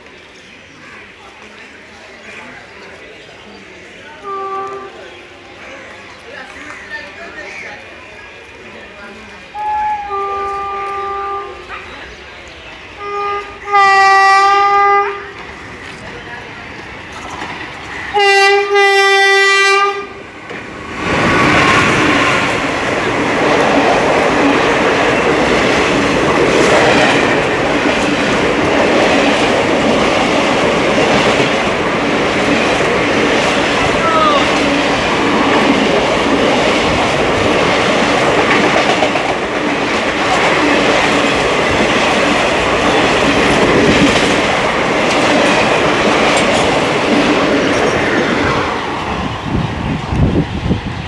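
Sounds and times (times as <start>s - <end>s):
train wheels clattering on rails: 15.3s - 19.4s, 20.4s - 50.5s.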